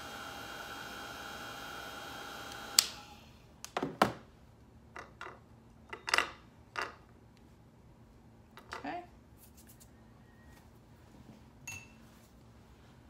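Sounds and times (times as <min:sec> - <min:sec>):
heat gun whirring: 0:00.0 - 0:03.3.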